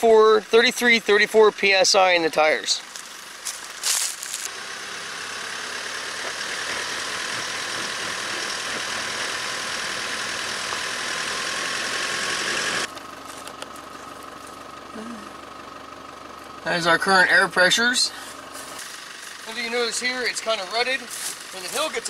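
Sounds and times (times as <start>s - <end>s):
truck engine under load: 0.1s - 22.0s
tyres spinning on dirt: 2.6s - 14.9s, 18.3s - 22.0s.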